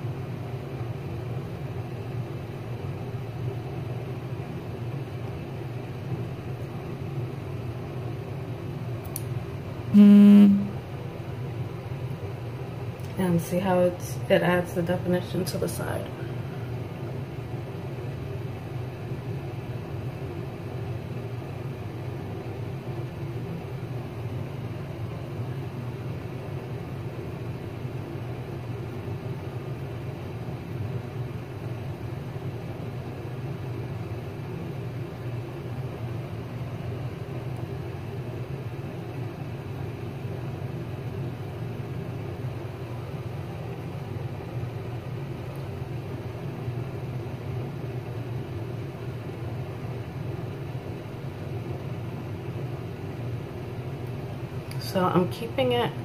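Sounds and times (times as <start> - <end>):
low background hum: 0.0 - 56.0.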